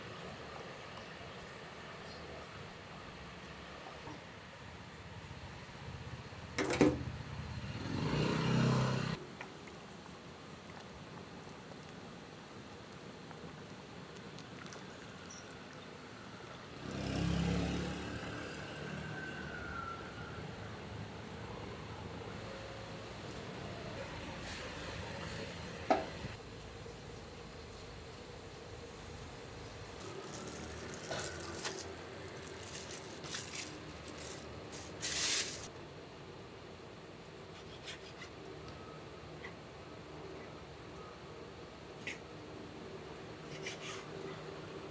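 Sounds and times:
background hiss: 22.2s - 44.9s
plastic bag rustling: 29.8s - 35.7s.

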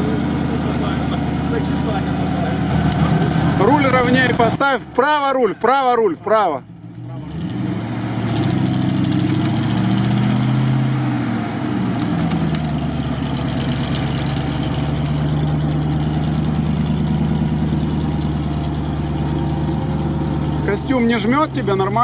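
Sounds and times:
truck engine revving: 0.0s - 22.0s.

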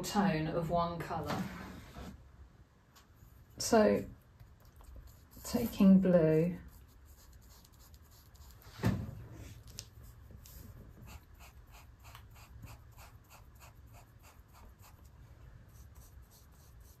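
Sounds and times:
paintbrush scrubbing on paper: 4.6s - 8.8s, 9.4s - 15.1s, 15.7s - 17.0s.

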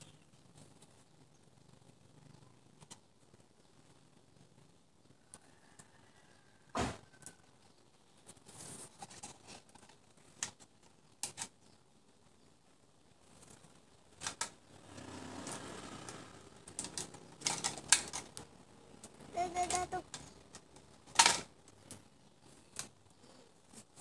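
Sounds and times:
twigs clicking and snapping: 15.5s - 22.0s, 22.6s - 23.0s.

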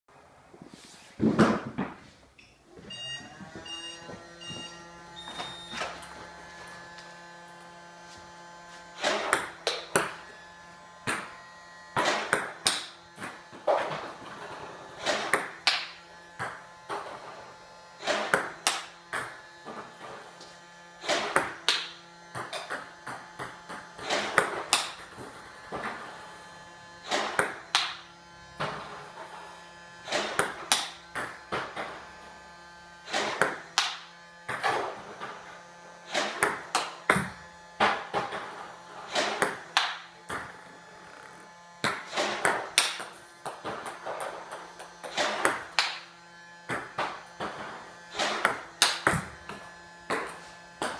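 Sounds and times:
short electronic beeps: 2.4s - 5.9s
motor hum: 2.7s - 50.9s
table tennis ball pocks: 12.0s - 14.0s, 36.1s - 38.5s, 41.8s - 46.0s.

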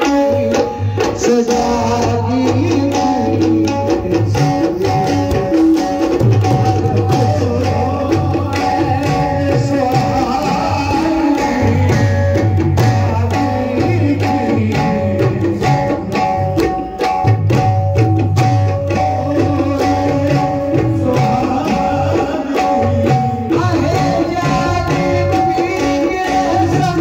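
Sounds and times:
tabla drumming: 0.0s - 27.0s.

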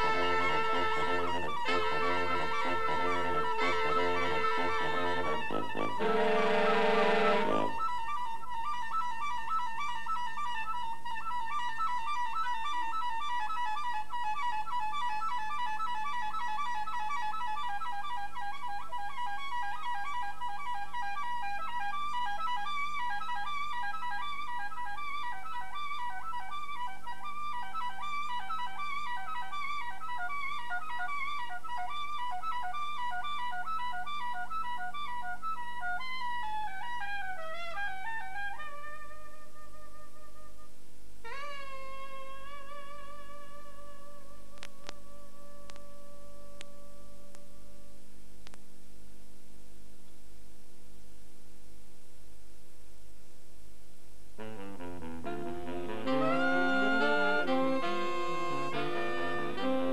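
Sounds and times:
saxophones and trumpet playing: 0.0s - 8.4s, 54.4s - 59.9s.

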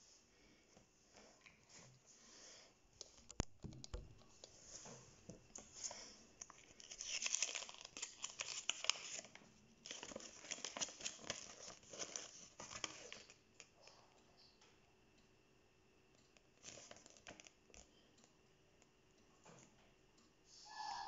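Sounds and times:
packaging crinkling and tearing: 6.4s - 13.4s, 16.6s - 17.6s.

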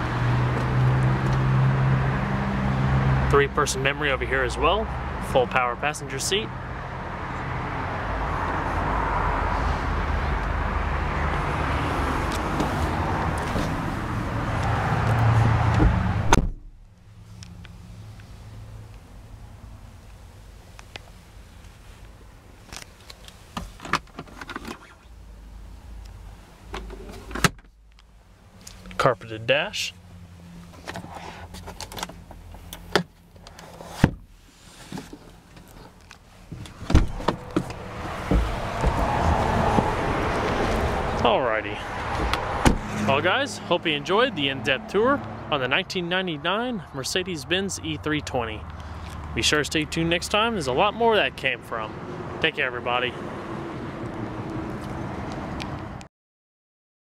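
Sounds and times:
steady outside noise: 0.0s - 56.1s
car door thud: 15.7s - 16.8s, 36.7s - 39.1s, 42.2s - 42.9s.

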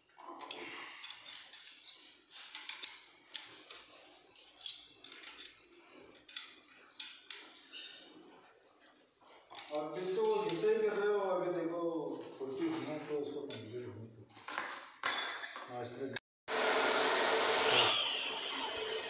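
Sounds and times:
small metallic clicks and clinks: 0.2s - 8.0s.

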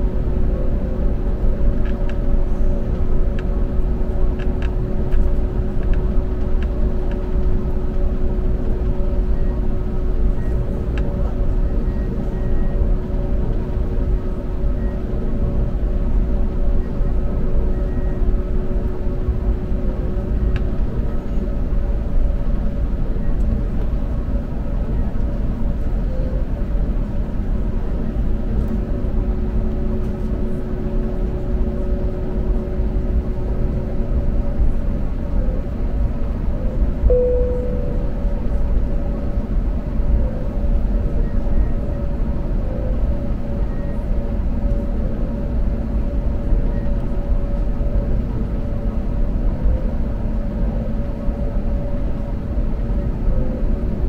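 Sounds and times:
faint steady hums: 0.0s - 54.0s
short cabin tone: 37.1s - 39.2s.

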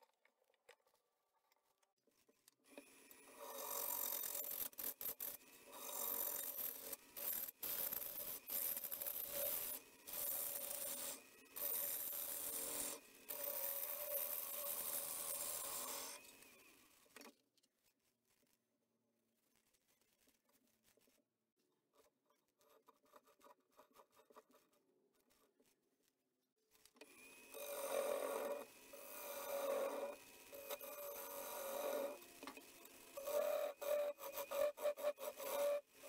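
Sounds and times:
gouge cutting wood on lathe: 3.3s - 16.5s, 27.2s - 36.0s.

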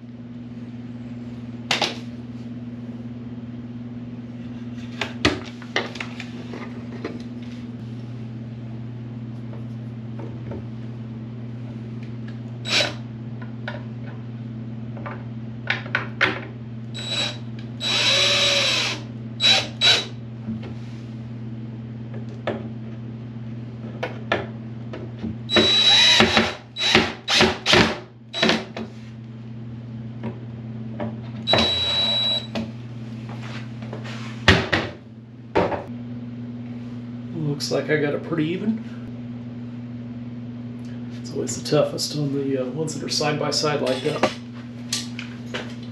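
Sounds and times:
steady low hum: 0.0s - 45.9s
cordless drill motor whining: 12.7s - 13.0s, 17.0s - 20.2s, 25.5s - 27.8s, 31.5s - 32.4s.

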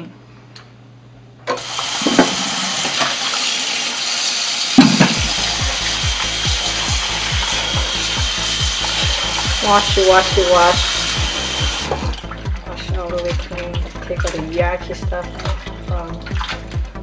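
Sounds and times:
tap water running into pot: 1.5s - 17.0s
background music with low beat: 4.8s - 17.0s.

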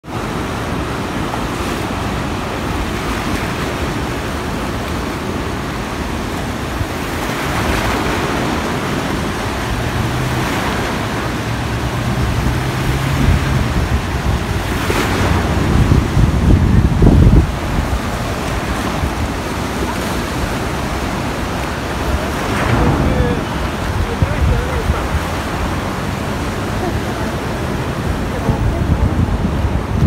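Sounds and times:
sea waves and surf: 0.0s - 30.0s
wind buffeting microphone: 0.0s - 30.0s.

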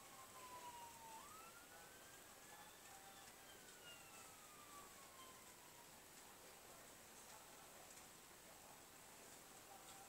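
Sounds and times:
wailing siren: 0.0s - 6.4s
faint steady hiss: 0.0s - 10.0s.

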